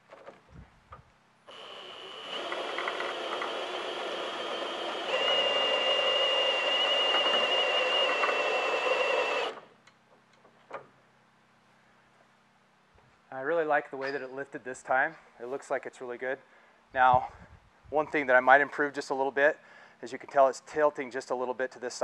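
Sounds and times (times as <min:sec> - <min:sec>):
cordless drill motor whine: 0:01.5 - 0:09.7.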